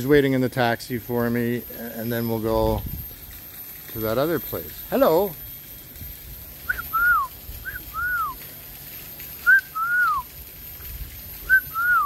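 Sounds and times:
person whistling two-note call: 6.7s - 8.4s, 9.4s - 10.3s.

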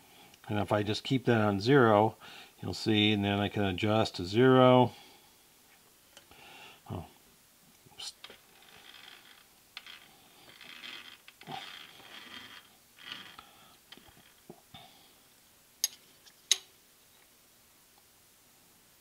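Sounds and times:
metal scraping and rubbing: 8.3s - 14.4s.

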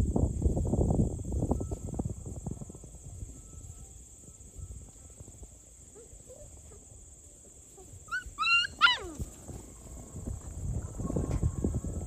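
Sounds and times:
crickets chirping: 0.0s - 12.0s
puppy squeaks: 8.1s - 9.2s.

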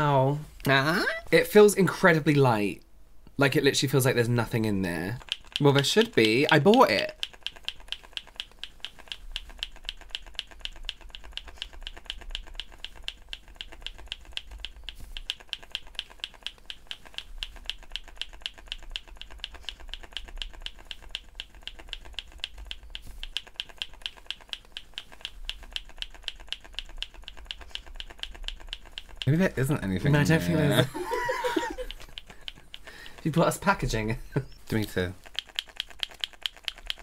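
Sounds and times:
rapid ticking clicks: 4.0s - 37.0s.

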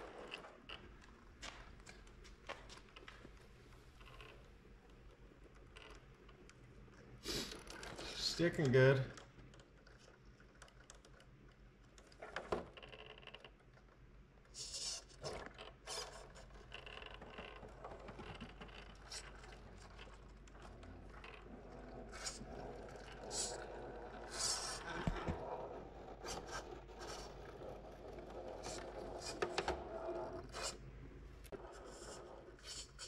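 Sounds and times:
electric motor whining in spurts: 24.3s - 25.4s.

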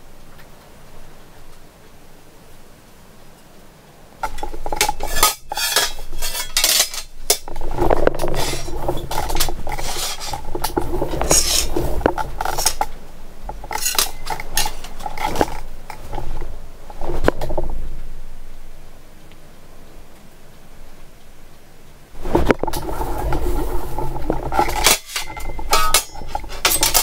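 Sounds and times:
metal clanking on metal: 4.2s - 16.5s, 22.2s - 27.0s.

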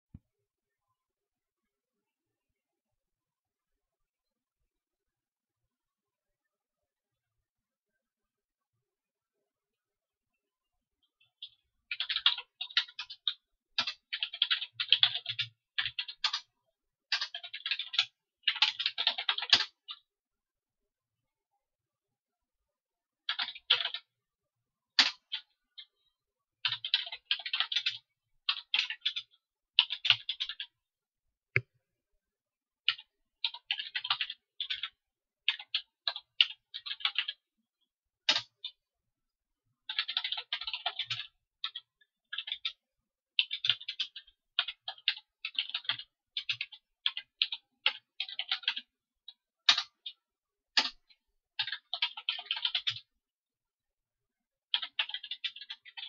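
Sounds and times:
computer keyboard typing: 11.3s - 16.5s, 17.1s - 20.1s, 23.3s - 24.1s, 25.0s - 25.9s, 26.6s - 30.8s, 32.8s - 37.5s, 38.3s - 38.8s, 39.8s - 42.8s, 43.4s - 50.2s, 50.8s - 53.1s, 54.7s - 56.0s.

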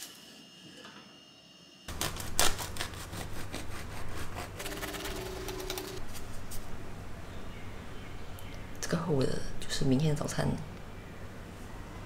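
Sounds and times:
knife sawing through bread crust: 2.0s - 4.6s.

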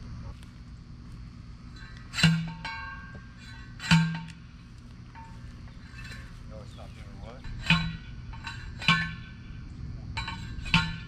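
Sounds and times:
post driver clanging on steel post: 1.8s - 4.5s, 5.1s - 9.6s, 10.2s - 11.0s.

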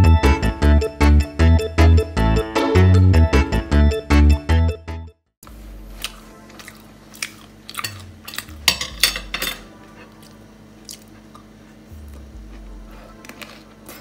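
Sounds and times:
low hum: 8.0s - 14.0s.

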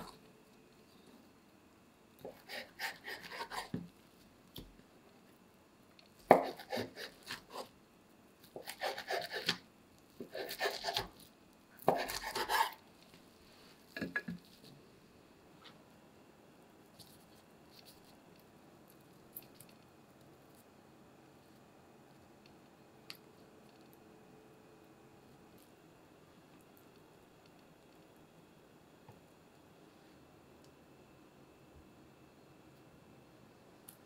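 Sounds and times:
knife chopping on wooden board: 2.2s - 3.9s, 6.3s - 7.7s, 8.6s - 9.6s, 10.2s - 11.1s, 11.8s - 12.8s.

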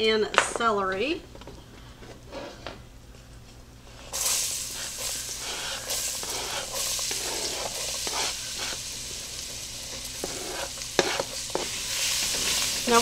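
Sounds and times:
vegetables sizzling in hot roux: 4.1s - 13.0s.

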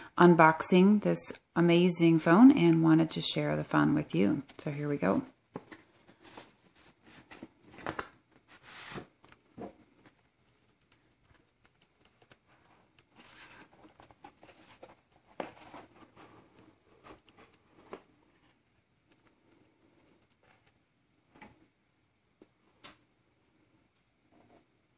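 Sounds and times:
cardboard sliding and rustling: 6.2s - 9.2s, 13.2s - 16.4s.

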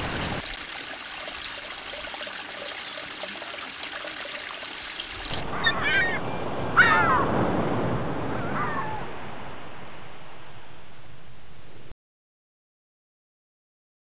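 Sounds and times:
steady hiss: 0.0s - 0.4s.

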